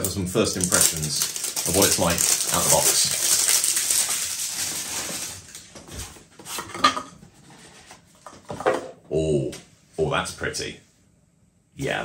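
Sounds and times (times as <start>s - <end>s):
packaging crinkling and rustling: 0.0s - 6.7s.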